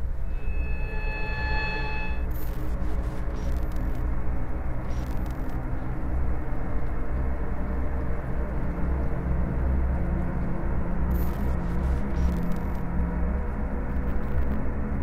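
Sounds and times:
low rumbling noise: 0:00.0 - 0:11.6.

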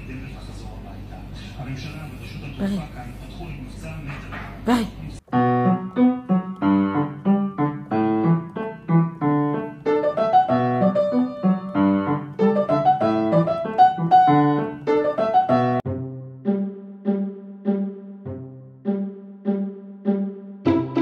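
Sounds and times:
piano music: 0:05.2 - 0:21.0.

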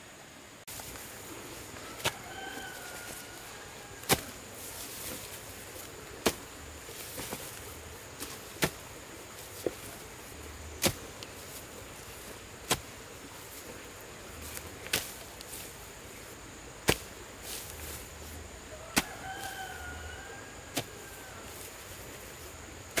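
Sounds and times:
hoe chopping into soil: 0:01.8 - 0:03.2, 0:04.0 - 0:10.0, 0:10.7 - 0:11.6, 0:12.2 - 0:13.1, 0:14.4 - 0:15.6, 0:16.8 - 0:18.0, 0:18.9 - 0:19.9, 0:20.7 - 0:21.9.

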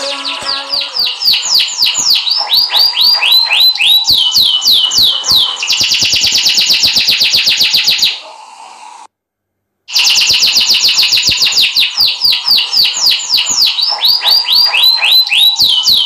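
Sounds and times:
canary singing: 0:00.0 - 0:08.2, 0:09.9 - 0:16.0.

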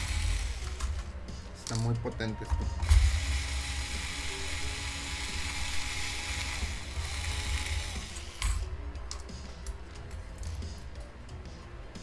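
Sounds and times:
electric screwdriver running: 0:00.0 - 0:00.8, 0:02.8 - 0:08.6.

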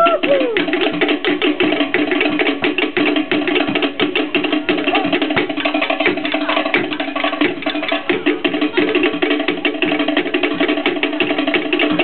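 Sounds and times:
large drum beat: 0:00.0 - 0:12.0
slit drums fast wooden strikes: 0:00.0 - 0:12.0.

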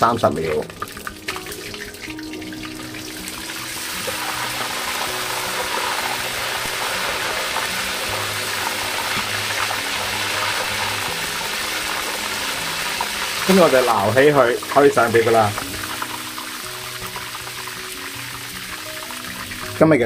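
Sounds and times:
background music: 0:00.0 - 0:20.0
food deep-frying in hot oil: 0:00.0 - 0:20.0.

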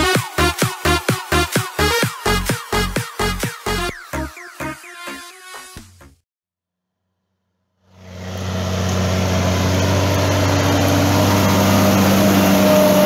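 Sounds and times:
tractor diesel engine running: 0:07.9 - 0:13.0.

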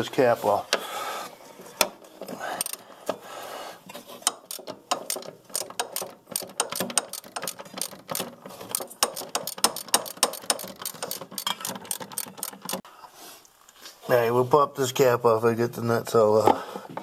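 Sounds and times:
socket ratchet clicking: 0:04.2 - 0:12.8.

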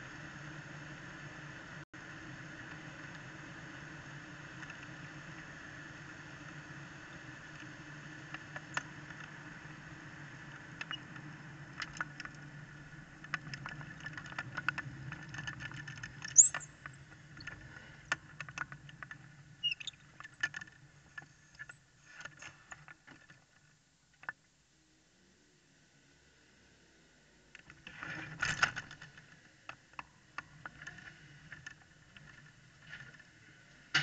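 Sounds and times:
kart tyres rolling rumble: 0:00.0 - 0:25.3, 0:25.9 - 0:34.0
chassis rattles and clicks: 0:13.1 - 0:24.4
short high squeak: 0:16.3 - 0:16.8, 0:19.6 - 0:20.0.

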